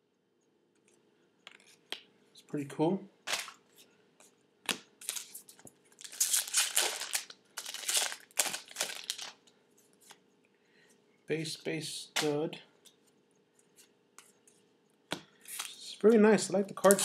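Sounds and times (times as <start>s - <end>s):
foil wrapper tearing and crinkling: 6.0s - 9.4s.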